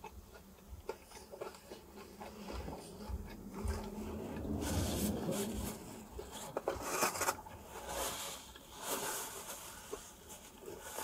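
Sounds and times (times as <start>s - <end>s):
chewing: 0.0s - 7.6s.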